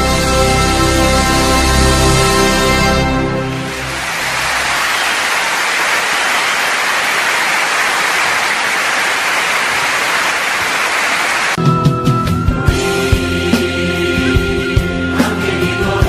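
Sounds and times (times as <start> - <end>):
music: 0.0 - 4.2, 11.6 - 16.0
loud static hiss: 3.4 - 11.6.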